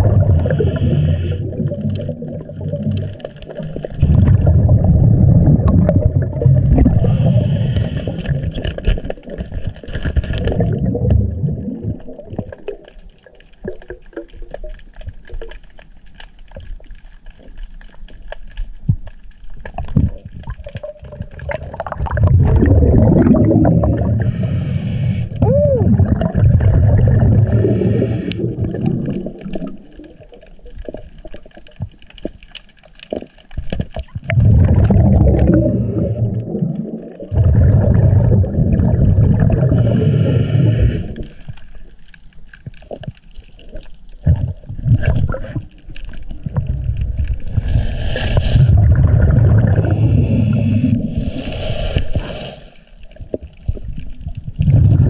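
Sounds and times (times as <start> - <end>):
exhaled bubbles rumbling: 0.0 - 52.4, 53.0 - 55.0
diver breathing through regulator: 0.2 - 1.6, 6.8 - 8.6, 23.3 - 25.4, 27.3 - 28.6, 35.3 - 36.4, 39.5 - 41.5, 47.4 - 49.0, 49.6 - 53.1
stones clicking underwater: 8.2 - 11.2, 11.9 - 23.4, 28.3 - 35.6.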